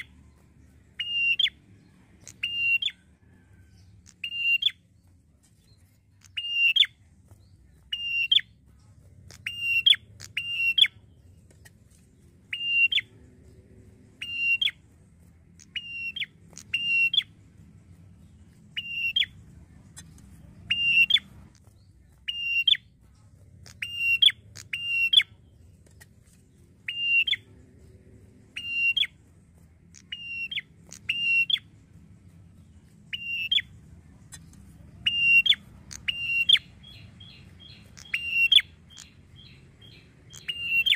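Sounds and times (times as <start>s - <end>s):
tailorbird calling: 35.1s - 40.9s.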